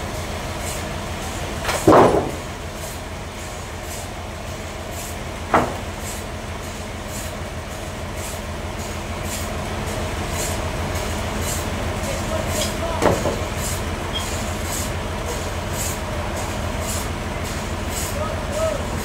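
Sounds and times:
sawmill machinery humming: 0:00.0 - 0:19.0
sharp knocks: 0:01.6 - 0:02.5, 0:05.5 - 0:05.9.

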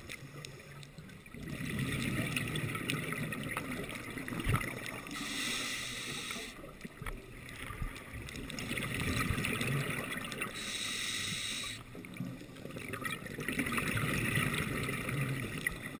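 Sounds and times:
exhaled bubbles gurgling: 0:00.0 - 0:16.0
regulator inhale hiss: 0:05.1 - 0:06.7, 0:10.5 - 0:11.9.

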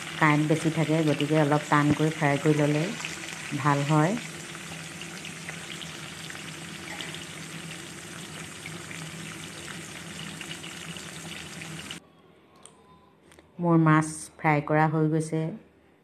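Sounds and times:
fish frying in oil: 0:00.0 - 0:12.0.

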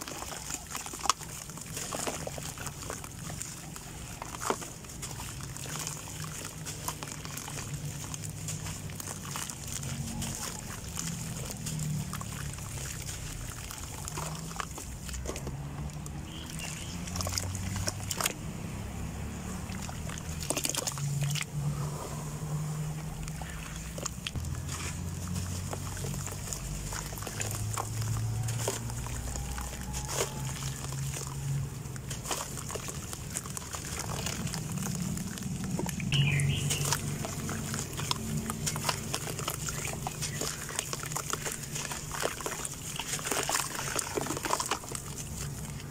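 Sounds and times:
crumbs splashing into water: 0:00.0 - 0:45.9
wet dirt squeezed and sloshed: 0:00.0 - 0:45.9
dirt crumbling by hand: 0:23.0 - 0:45.9.

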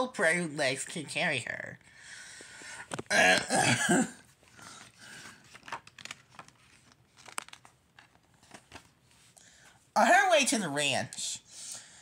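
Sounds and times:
book page turning: 0:04.3 - 0:09.4.

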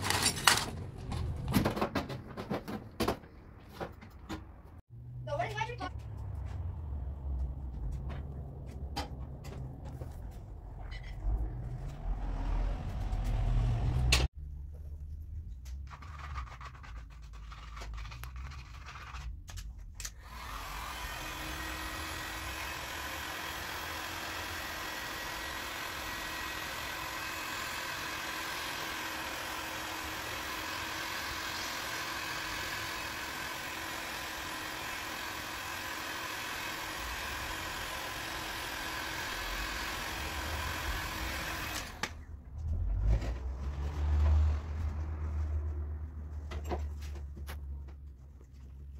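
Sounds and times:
heat gun fan blowing: 0:20.2 - 0:42.2.

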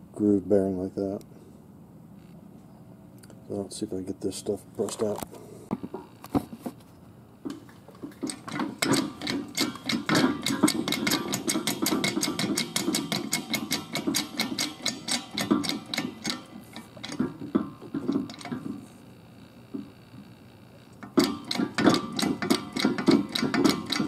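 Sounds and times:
rapid clicking of hand tool: 0:07.5 - 0:18.9, 0:21.0 - 0:24.0
scattered knocks: 0:21.1 - 0:24.0.

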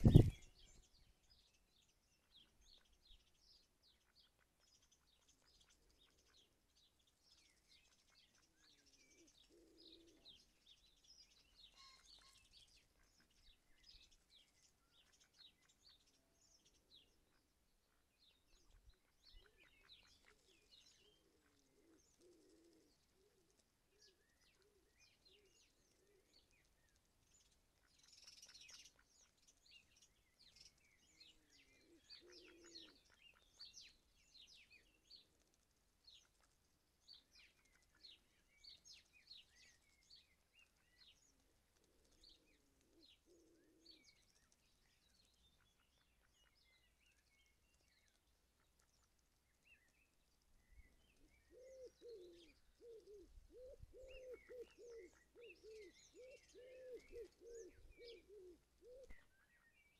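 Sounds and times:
pigeon cooing: 0:00.0 - 0:00.4, 0:21.7 - 0:22.9, 0:32.1 - 0:33.0, 0:51.5 - 0:59.2
small birds chirping: 0:00.0 - 0:59.9.

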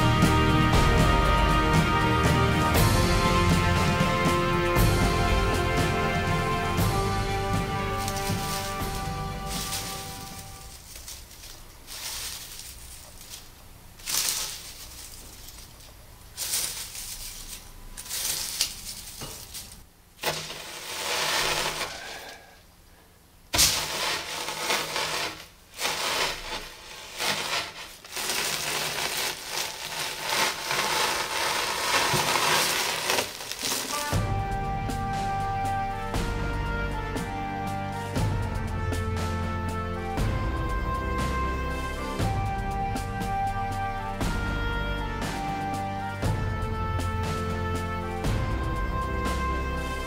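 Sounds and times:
matchsticks rustling and crunching: 0:07.4 - 0:22.5, 0:23.5 - 0:34.2
sharp crunch: 0:07.4 - 0:22.5, 0:23.5 - 0:34.2.

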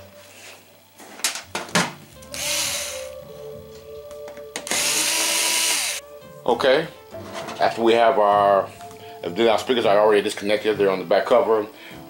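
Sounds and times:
cordless electric screwdriver running: 0:02.3 - 0:03.1, 0:04.7 - 0:06.0.

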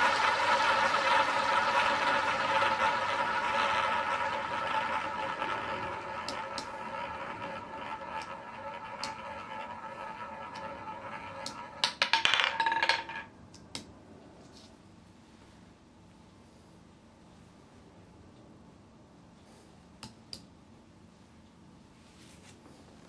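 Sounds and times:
roulette ball whirring: 0:00.0 - 0:13.9.

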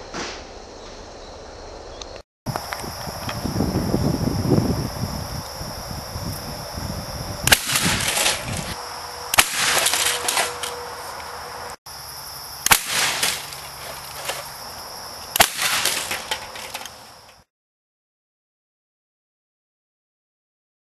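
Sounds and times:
spud gun firing bangs: 0:07.5 - 0:10.7, 0:12.6 - 0:13.6, 0:15.3 - 0:16.6.

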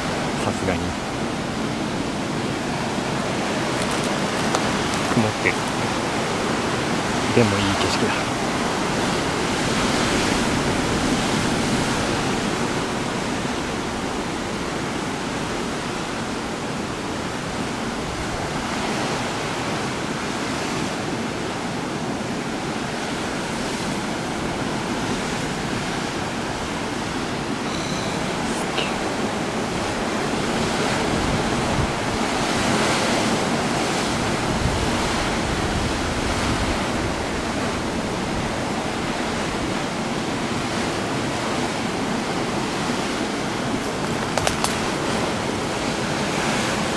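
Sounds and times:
surf breaking over rocks: 0:42.0 - 0:46.9.

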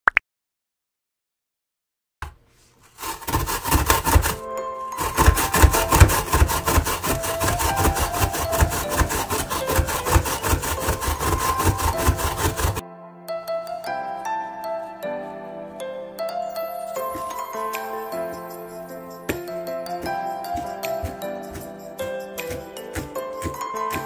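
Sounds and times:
radish grating on a grater: 0:02.8 - 0:04.4, 0:05.0 - 0:12.8, 0:20.6 - 0:24.0.

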